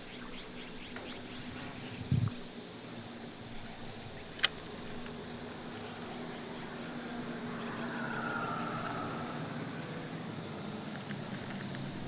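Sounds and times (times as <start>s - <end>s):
steady low hum: 0.0s - 12.0s
motor vehicle passing: 3.3s - 12.0s
sharp click: 4.3s - 5.1s.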